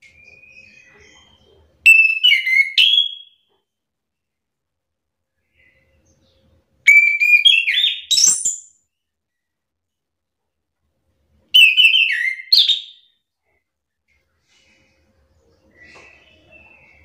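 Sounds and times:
thrush singing whistled notes: 0:06.9 - 0:08.8, 0:11.6 - 0:13.1.

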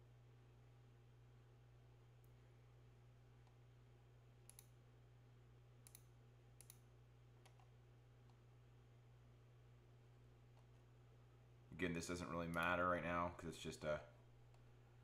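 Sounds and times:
low steady hum: 0:00.0 - 0:15.0
computer mouse clicks: 0:04.4 - 0:04.8, 0:05.8 - 0:06.8, 0:07.4 - 0:08.4, 0:12.5 - 0:12.8.

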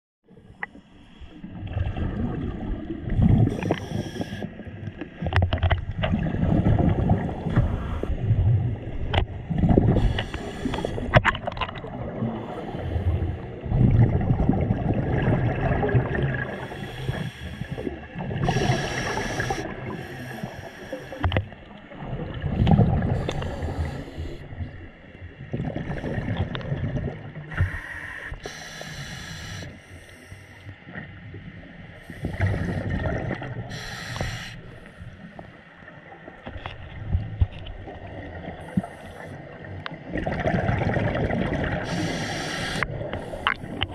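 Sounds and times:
muffled underwater rumble: 0:00.3 - 0:43.9
exhaled bubbles rushing: 0:01.4 - 0:04.0, 0:05.8 - 0:10.1, 0:11.0 - 0:12.6, 0:13.6 - 0:20.0, 0:21.9 - 0:24.0, 0:25.4 - 0:27.8, 0:32.2 - 0:33.7, 0:40.0 - 0:43.9.

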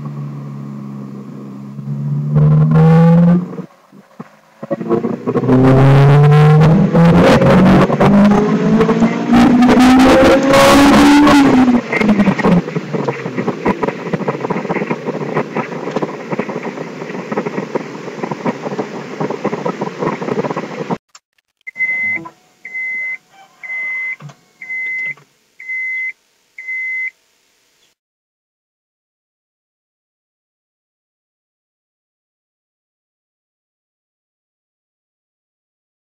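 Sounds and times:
road noise: 0:00.0 - 0:28.0
car engine revving hard: 0:00.2 - 0:03.7, 0:04.6 - 0:14.9
short high beeps: 0:21.7 - 0:27.1.

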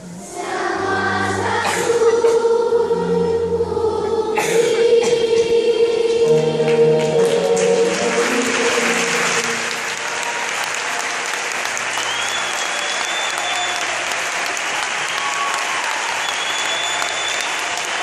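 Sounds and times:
choir and orchestra chord: 0:00.0 - 0:10.5
audience applause: 0:06.3 - 0:18.0
high whistles: 0:11.9 - 0:13.9, 0:15.1 - 0:18.0.

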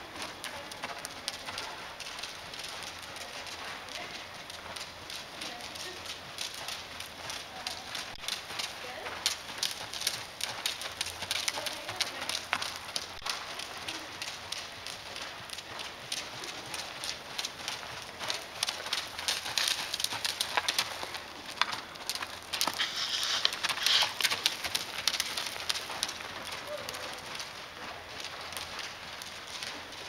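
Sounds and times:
hooves in sand: 0:00.0 - 0:30.0
footsteps scuffing through sand: 0:22.7 - 0:24.2.

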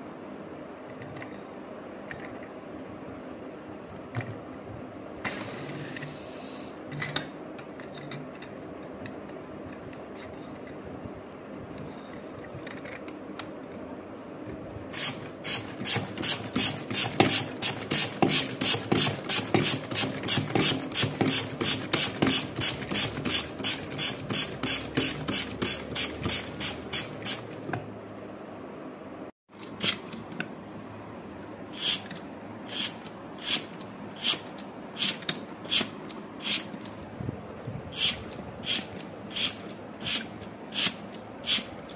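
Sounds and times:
hand air pump hissing: 0:05.3 - 0:06.8, 0:14.9 - 0:27.6, 0:29.8 - 0:30.2, 0:31.7 - 0:36.9, 0:37.9 - 0:41.9.

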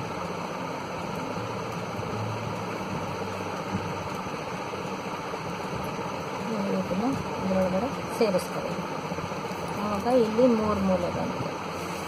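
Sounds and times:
steady background hiss: 0:00.0 - 0:12.0.

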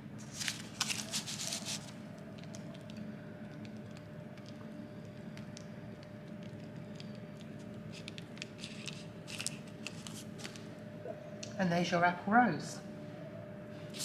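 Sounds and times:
low hum with high tone: 0:00.0 - 0:14.0
baking paper crinkling: 0:00.2 - 0:04.6, 0:05.2 - 0:10.7.

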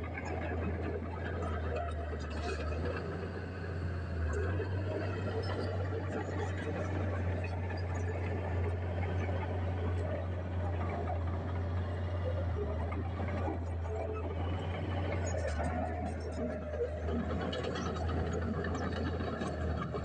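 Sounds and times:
diesel truck engines rumbling: 0:00.0 - 0:20.0.

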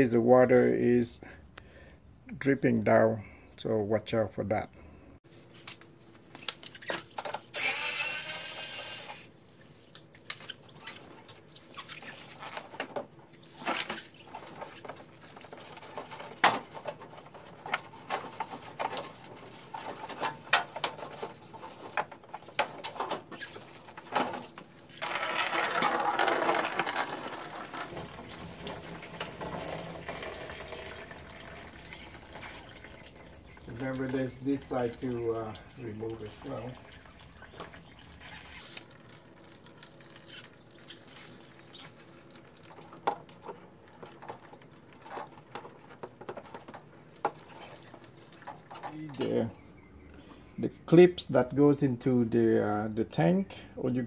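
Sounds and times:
fluid pouring into plastic bin: 0:24.9 - 0:43.0.

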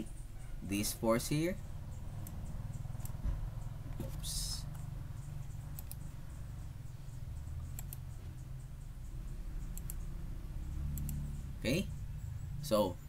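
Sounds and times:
steady low hum: 0:00.0 - 0:13.0
computer mouse clicking: 0:01.9 - 0:11.5.

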